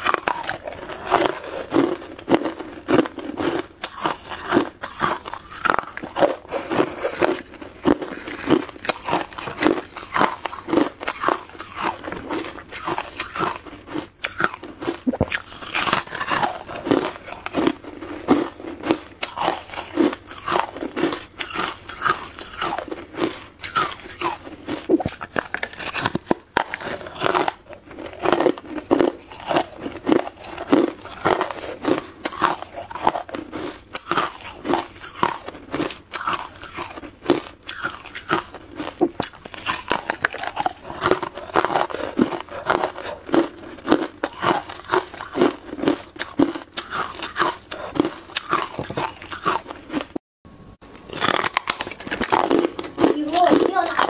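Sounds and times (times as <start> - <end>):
ice being crunched: 5.2 - 13.6.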